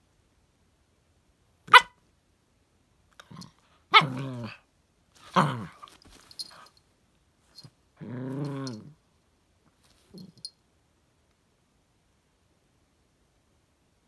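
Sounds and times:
puppy barking and howling: 3.9s - 4.6s.

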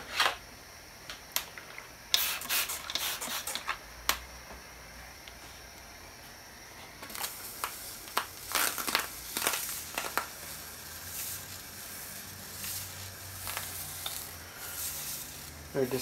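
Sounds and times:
torch flame hissing: 0.7s - 3.8s, 5.0s - 16.0s
wood clicks and crackling rustles: 7.0s - 10.4s.

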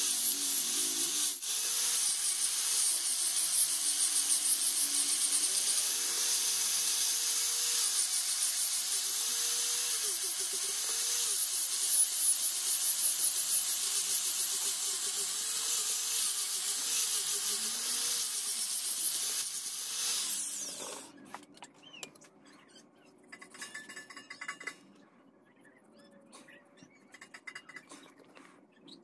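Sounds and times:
angle grinder sanding wood: 0.0s - 21.1s.

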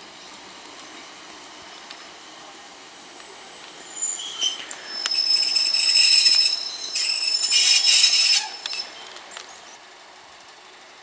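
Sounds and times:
train brakes squealing: 2.8s - 9.1s.

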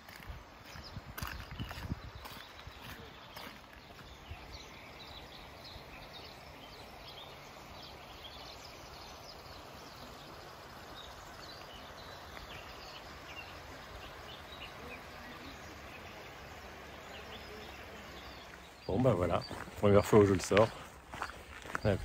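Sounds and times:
background hiss: 0.0s - 22.0s
small birds chirping: 0.0s - 22.0s.

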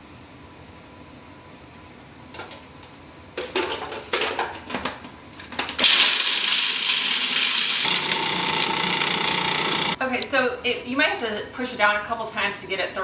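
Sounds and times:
food processor motor chopping: 5.8s - 10.0s.

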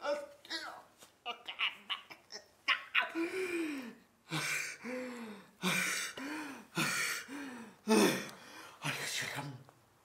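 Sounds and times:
person gasping: 3.1s - 8.8s.

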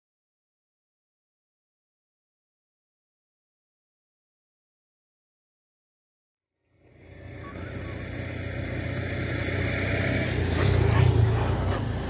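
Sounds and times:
engine running with low hum: 6.6s - 12.0s.

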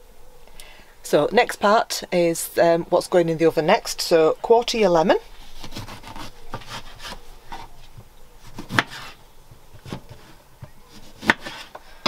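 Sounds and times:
knife slicing a lemon: 8.5s - 9.2s, 10.9s - 11.7s.

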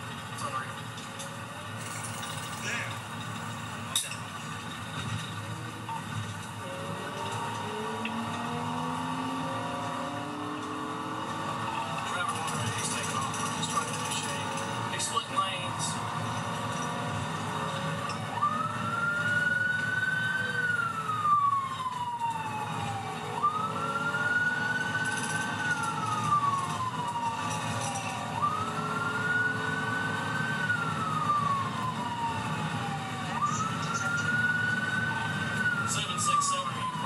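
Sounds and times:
engine and road noise rumble: 0.0s - 37.0s
police siren wailing: 0.4s - 37.0s.

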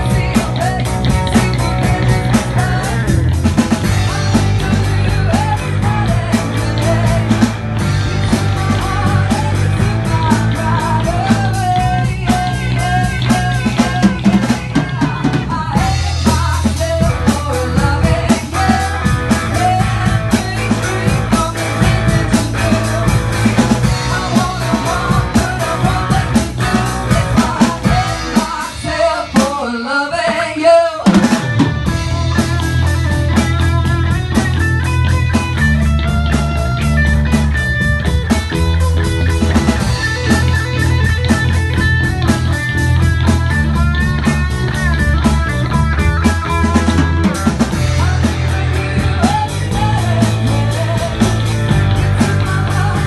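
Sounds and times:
man singing: 0.0s - 33.4s, 46.4s - 53.0s
drum kit: 0.0s - 53.0s
electric bass: 0.0s - 53.0s
electric guitar: 0.0s - 53.0s.

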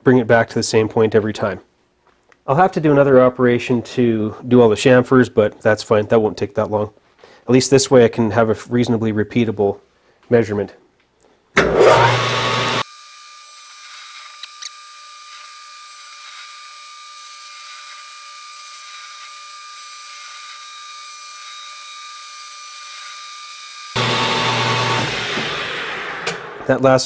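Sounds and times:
metal lathe whining: 11.6s - 12.9s, 13.6s - 26.6s
small clicks: 13.8s - 15.5s.

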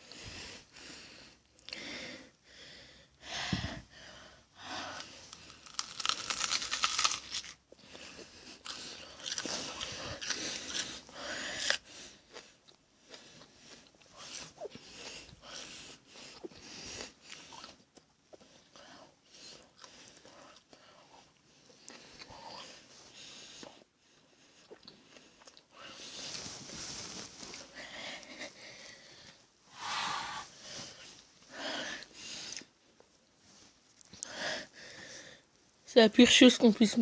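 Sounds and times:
crunching and chewing raw onion: 4.8s - 18.7s, 24.6s - 26.4s.

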